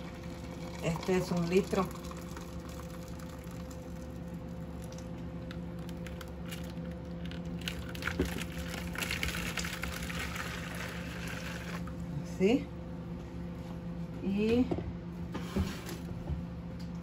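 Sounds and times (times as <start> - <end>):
water pouring into a plastic bowl: 0.0 - 4.2, 7.9 - 11.9
steady low hum: 0.0 - 17.0.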